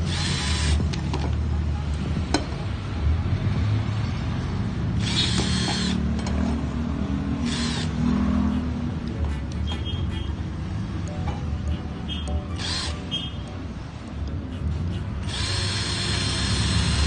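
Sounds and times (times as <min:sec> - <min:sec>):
cordless drill boring steel: 0:00.0 - 0:00.8, 0:05.0 - 0:06.0, 0:07.4 - 0:08.0, 0:12.6 - 0:13.0, 0:15.2 - 0:17.0
high-pitched cutting bursts: 0:05.0 - 0:06.1, 0:07.4 - 0:17.0.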